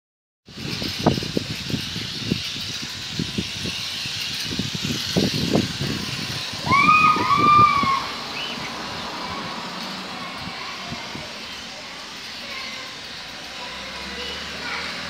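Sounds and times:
toy motorbike motor whirring: 0:00.5 - 0:15.0
rising-and-falling cries: 0:04.4 - 0:15.0.

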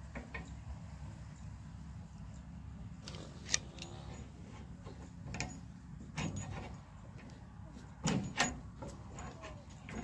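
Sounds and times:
short metallic clicks and knocks: 0:04.8 - 0:06.8, 0:08.0 - 0:10.0.

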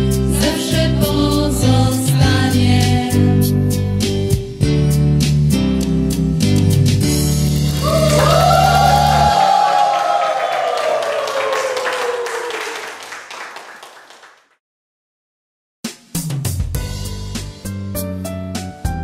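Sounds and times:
guitar backing track: 0:03.1 - 0:07.7
choir singing held note: 0:07.8 - 0:12.6.

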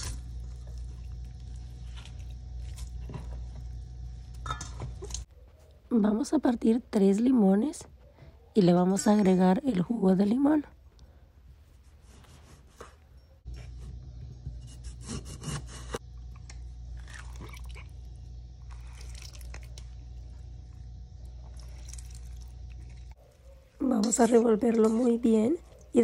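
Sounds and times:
limes crunching and squishing: 0:00.0 - 0:03.4, 0:16.1 - 0:20.4, 0:21.1 - 0:23.2
steady low hum: 0:00.0 - 0:26.0
juice dripping: 0:16.0 - 0:23.2.

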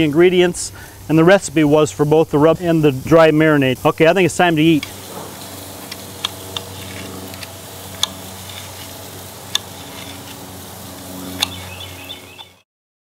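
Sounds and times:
steady low hum: 0:03.9 - 0:12.6.

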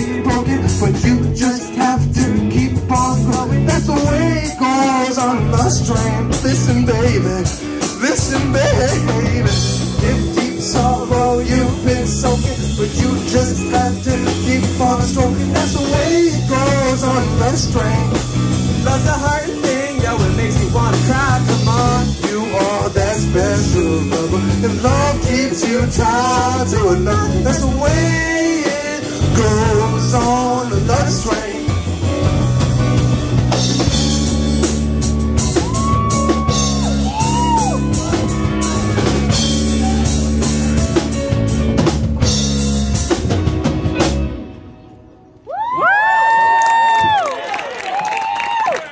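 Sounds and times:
lead singer vocal runs: 0:00.0 - 0:32.4
drum kit: 0:00.0 - 0:44.6
live pop-rock band playing: 0:00.0 - 0:45.8.

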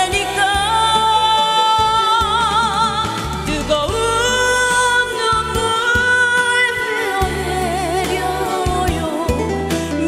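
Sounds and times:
instrumental accompaniment: 0:00.0 - 0:10.0
woman singing a slow ballad: 0:00.0 - 0:10.0.

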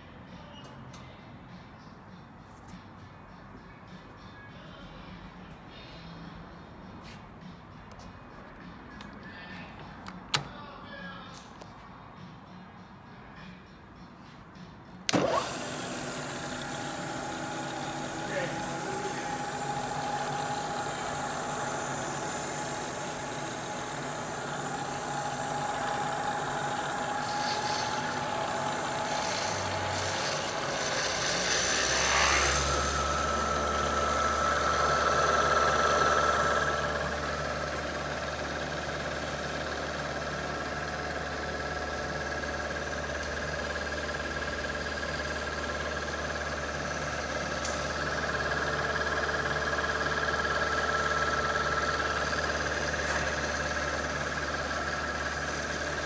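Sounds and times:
milling machine hum with whine: 0:15.1 - 0:56.0.

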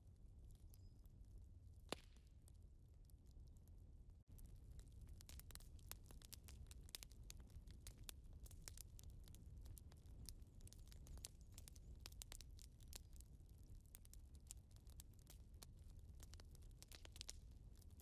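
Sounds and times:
faint crackling clicks: 0:04.3 - 0:18.0.

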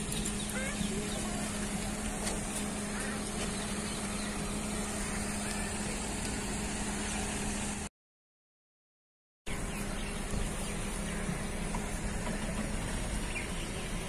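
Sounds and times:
low traffic hum: 0:00.0 - 0:07.9, 0:09.5 - 0:14.0.

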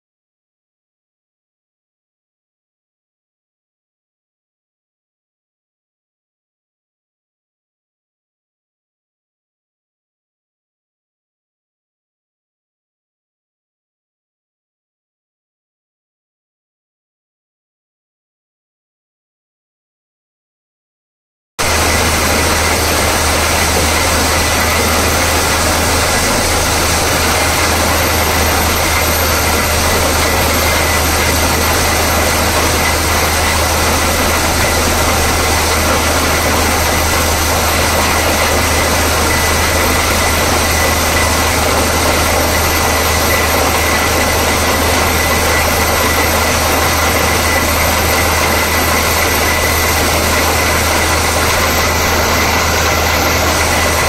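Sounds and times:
drilling rig engine drone: 0:21.6 - 0:54.0.

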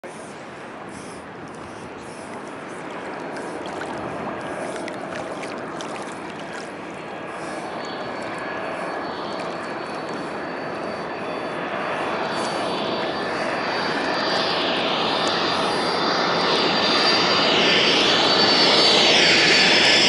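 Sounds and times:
jet engines roaring: 0:00.0 - 0:20.0
steady high whine: 0:00.0 - 0:20.0
sea water splashing and lapping: 0:00.1 - 0:17.2.

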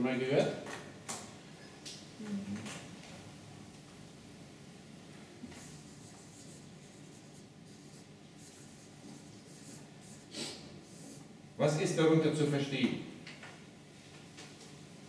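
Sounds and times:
marker pen scratching on paper: 0:05.5 - 0:11.3.

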